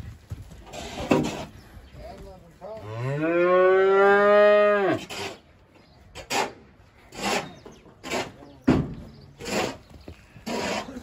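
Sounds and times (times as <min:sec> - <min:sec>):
cow mooing: 0:03.0 - 0:05.0.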